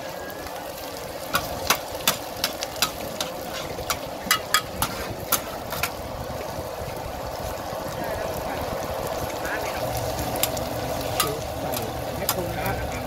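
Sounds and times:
metal spatulas scraping iron pan: 0:01.7 - 0:05.9.

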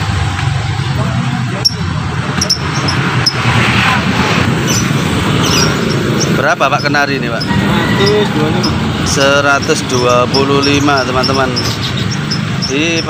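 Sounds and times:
caged birds chirping: 0:00.0 - 0:13.0.

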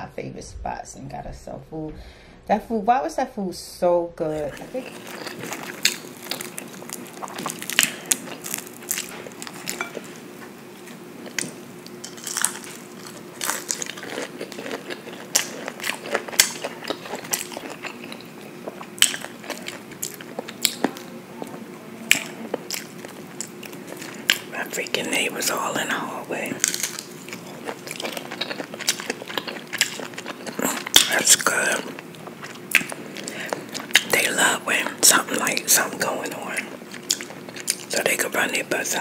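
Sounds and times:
crunchy eating and chewing: 0:04.3 - 0:39.0.

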